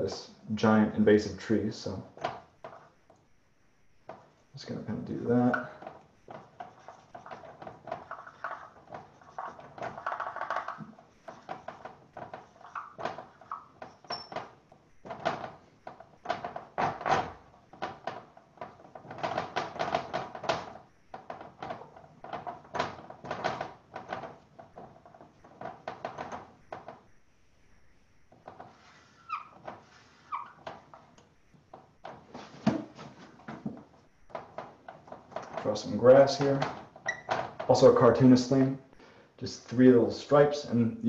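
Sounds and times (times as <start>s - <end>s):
marker scribbling on paper: 6.3s - 10.5s.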